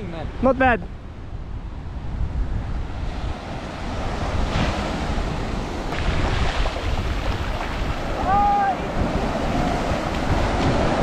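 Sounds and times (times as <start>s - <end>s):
wind buffeting microphone: 0.0s - 11.0s
small surf breaking on sand: 3.4s - 11.0s.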